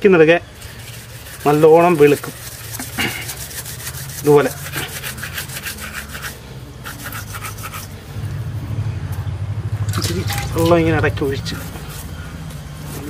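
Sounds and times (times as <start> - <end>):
steel wool scrubbing fish skin: 0.6 - 8.0, 11.5 - 13.0.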